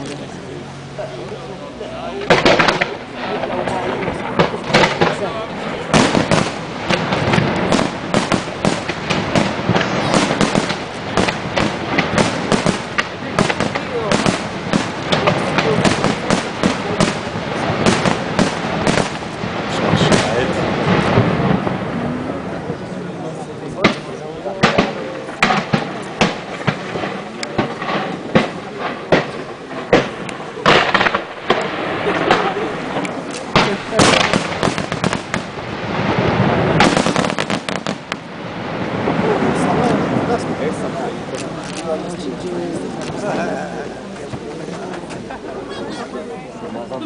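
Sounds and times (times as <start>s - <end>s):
fireworks bursting: 0.0s - 47.0s.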